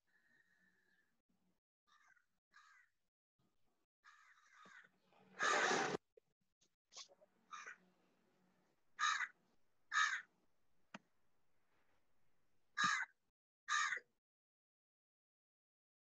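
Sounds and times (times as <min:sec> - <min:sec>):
crow cawing: 0:01.9 - 0:02.9, 0:04.0 - 0:05.8, 0:07.5 - 0:07.8, 0:09.0 - 0:10.3, 0:12.8 - 0:13.1, 0:13.7 - 0:14.0.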